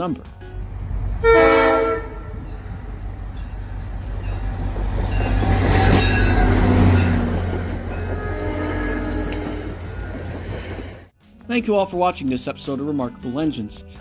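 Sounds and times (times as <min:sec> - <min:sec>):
train wheels passing: 0:00.3 - 0:11.1
locomotive air horn blast: 0:01.2 - 0:02.4, 0:08.1 - 0:09.8.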